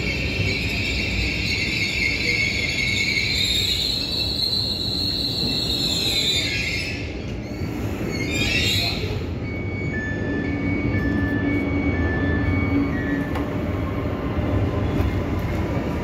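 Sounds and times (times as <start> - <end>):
train brakes squealing: 0.0 - 16.0
high electronic beep: 8.5 - 13.6.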